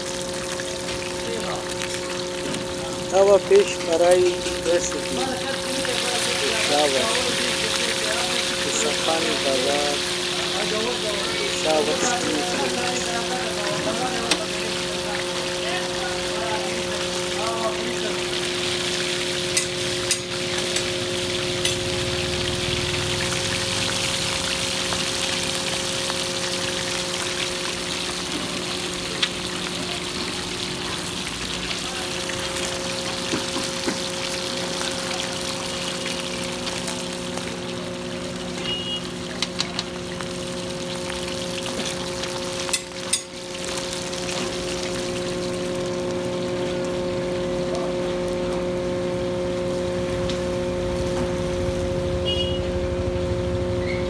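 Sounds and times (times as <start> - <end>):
fish sizzling in oil: 0.0 - 54.0
metal tongs clicking on griddle: 39.5 - 39.9
low hum: 44.7 - 54.0.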